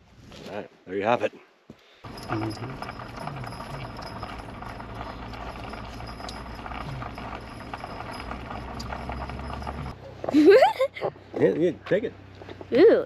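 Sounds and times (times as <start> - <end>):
vehicle engine running: 2.0 - 10.3
light clicks and rattles: 2.1 - 10.0.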